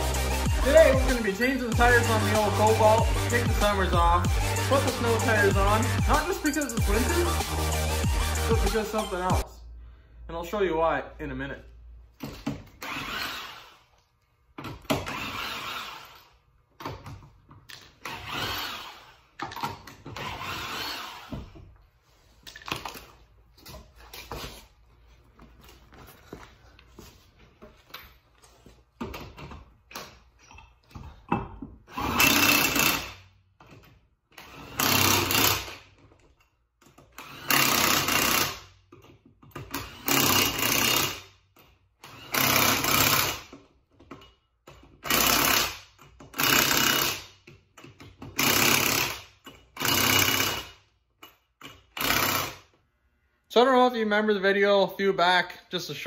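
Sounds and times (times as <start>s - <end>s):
impact wrench rattling bursts: 0.0s - 9.0s, 12.1s - 14.0s, 14.6s - 21.6s, 31.8s - 52.8s
clinks of nuts and tools: 38.9s - 40.6s, 43.5s - 45.1s, 47.4s - 48.4s, 49.4s - 50.4s, 51.1s - 52.1s.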